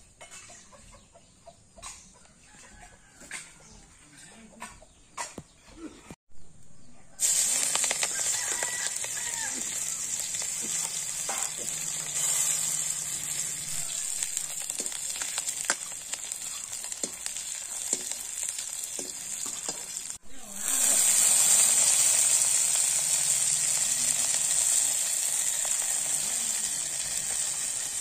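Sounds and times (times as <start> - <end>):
onions sizzling in hot oil: 7.2 - 28.0.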